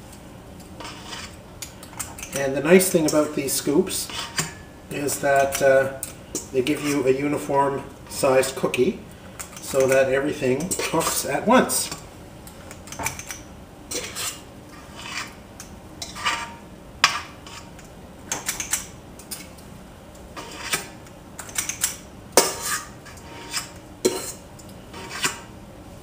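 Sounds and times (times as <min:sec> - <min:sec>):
metal scoop clinking and scraping: 0:02.0 - 0:05.8.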